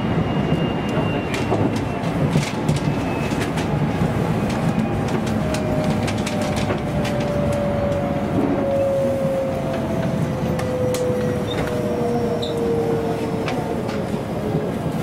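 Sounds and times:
train wheels rumbling on rail: 0.0s - 15.0s.

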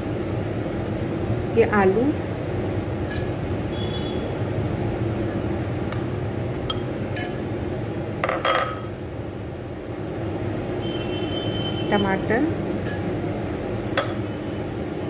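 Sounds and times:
steady low hum: 0.0s - 15.0s
spoon clinking against bowls: 3.1s - 3.4s, 6.7s - 7.4s, 12.8s - 13.1s, 14.0s - 14.2s.

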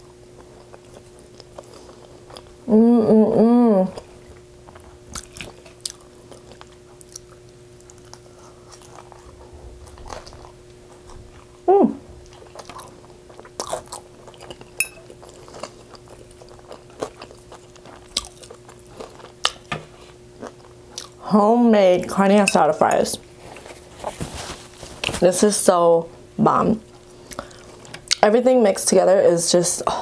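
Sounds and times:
faint steady background hum: 0.0s - 30.0s
short hummed voice sound: 2.6s - 4.1s, 11.6s - 12.2s
wet chewing and mouth clicks: 4.0s - 11.6s, 12.2s - 19.7s, 20.4s - 21.2s.

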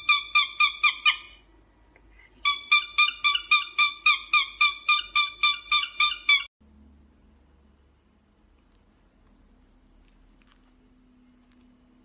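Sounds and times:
cockatiel chirping: 0.0s - 1.4s, 2.4s - 6.5s.

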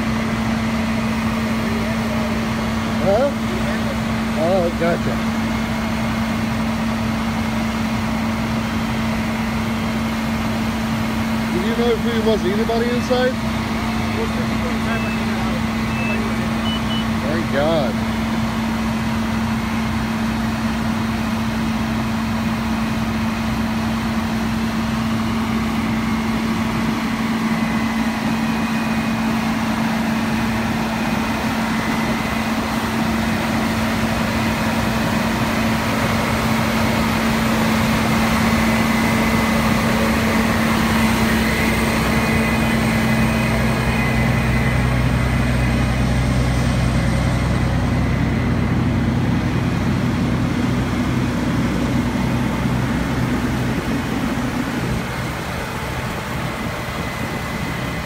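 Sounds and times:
diesel engines humming: 0.0s - 58.0s
deep engine note: 22.8s - 58.0s.

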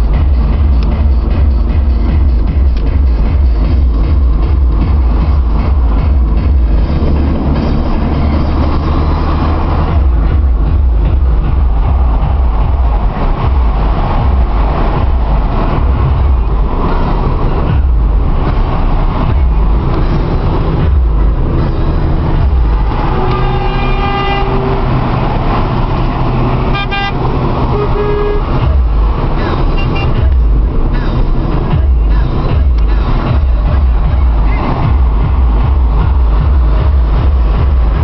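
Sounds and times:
road and engine noise in car: 0.0s - 38.0s
car horns tooting: 23.0s - 28.8s, 29.4s - 30.3s.

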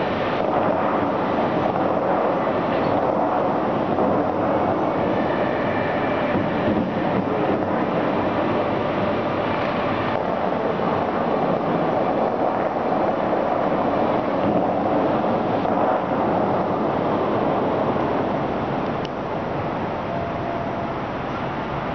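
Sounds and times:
fountain water jets roaring: 0.0s - 21.9s.

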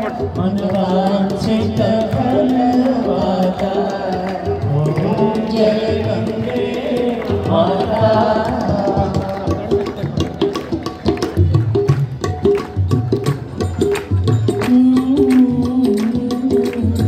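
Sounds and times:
devotional hymn singing: 0.0s - 10.0s
hand drum percussion: 0.0s - 17.0s.

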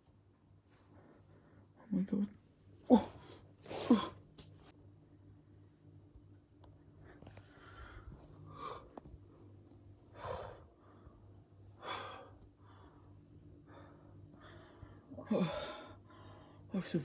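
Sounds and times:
faint low hum: 0.0s - 17.0s
person breathing heavily: 7.1s - 9.2s, 10.0s - 16.7s.

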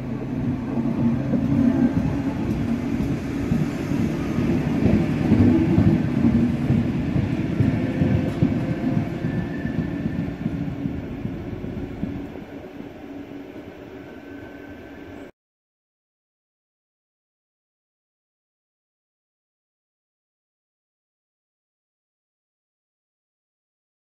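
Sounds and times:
train wheels rumbling over rails: 0.0s - 15.3s.

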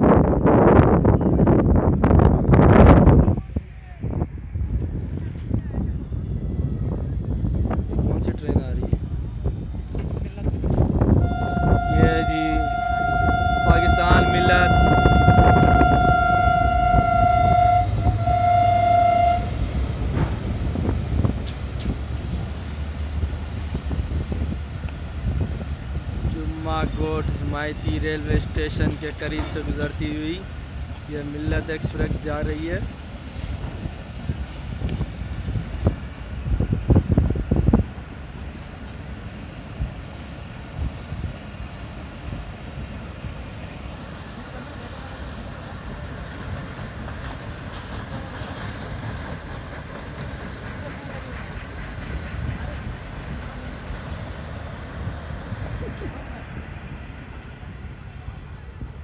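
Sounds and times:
train coaches rumbling past: 0.0s - 59.0s
locomotive horn: 11.2s - 20.3s.

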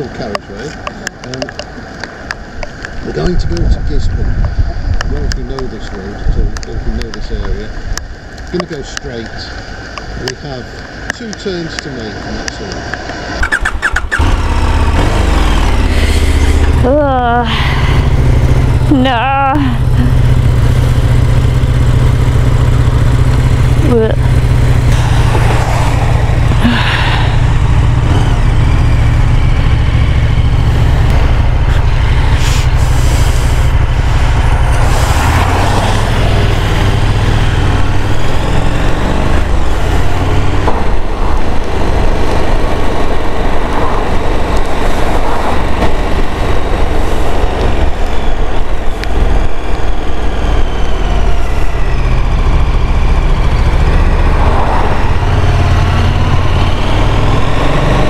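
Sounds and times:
wind noise on microphone: 2.5s - 8.2s, 22.8s - 58.0s
motorcycle engine running: 13.4s - 58.0s.

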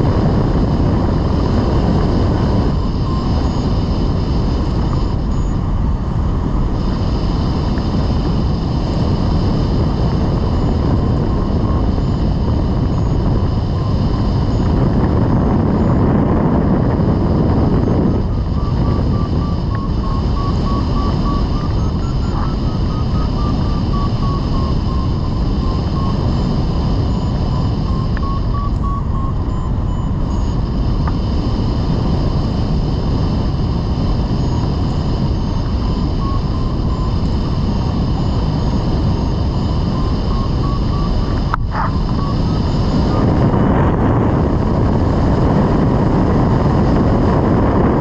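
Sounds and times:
wind rushing over microphone: 0.0s - 48.0s
faint short beeps: 27.0s - 31.2s.

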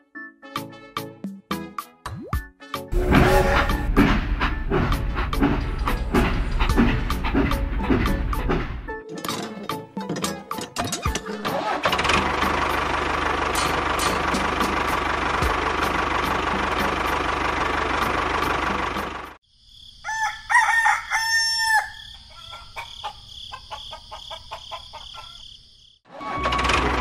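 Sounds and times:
engine running: 2.9s - 8.9s, 11.1s - 19.4s, 26.2s - 27.0s
rooster crowing: 20.0s - 25.6s
chickens clucking: 22.1s - 25.5s.

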